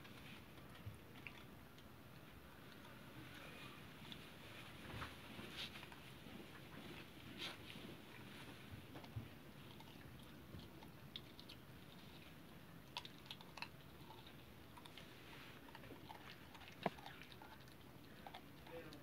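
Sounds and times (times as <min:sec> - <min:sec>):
puppy chewing clicks: 0:00.0 - 0:02.9, 0:08.0 - 0:19.0.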